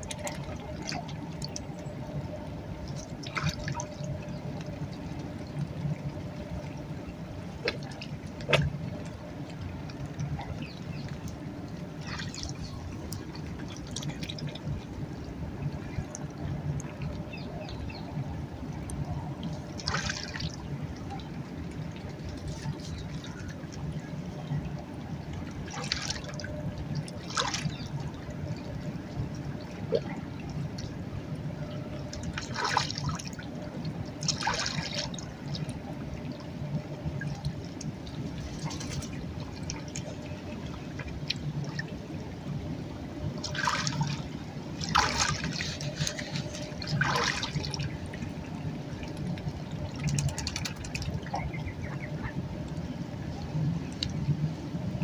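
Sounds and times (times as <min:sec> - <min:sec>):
river water lapping at shore: 0:00.0 - 0:55.0
geese splashing in water: 0:12.0 - 0:12.6, 0:25.7 - 0:26.5, 0:27.2 - 0:28.0, 0:32.3 - 0:33.3, 0:34.2 - 0:35.2, 0:43.4 - 0:44.2, 0:44.8 - 0:48.2.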